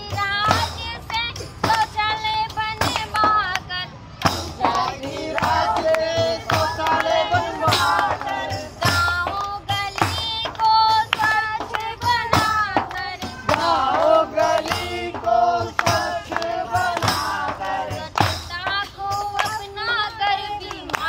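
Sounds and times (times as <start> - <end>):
hands clapping: 0.5 - 21.0
group singing in chorus: 4.2 - 18.6
tambourine jingling: 4.2 - 20.6.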